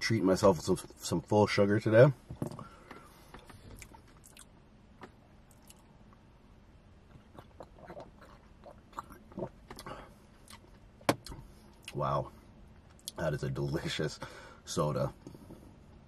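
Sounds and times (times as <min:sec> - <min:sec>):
person drinking and swallowing: 0:07.1 - 0:10.1.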